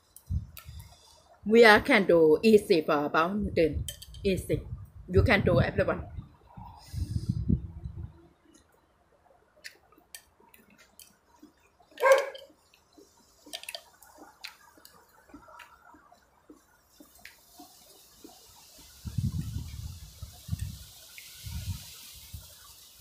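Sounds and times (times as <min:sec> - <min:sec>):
low muffled sound: 0:03.5 - 0:08.4
wet mouth clicks: 0:09.6 - 0:18.4.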